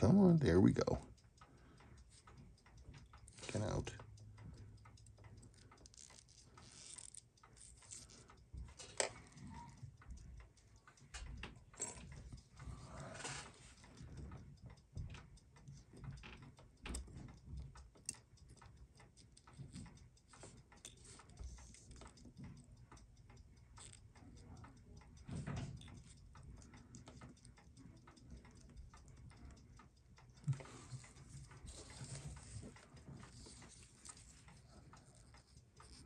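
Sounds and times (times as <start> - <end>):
tweezers tapping watch parts: 0.6 - 13.2, 13.8 - 36.0.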